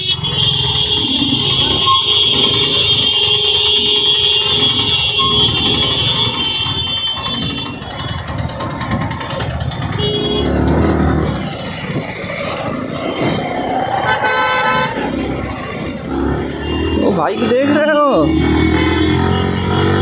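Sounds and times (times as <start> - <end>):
vehicle horns honking: 0.0 - 8.1, 9.8 - 11.2, 13.0 - 15.8, 16.4 - 20.0
motorcycle and scooter engines: 0.0 - 20.0.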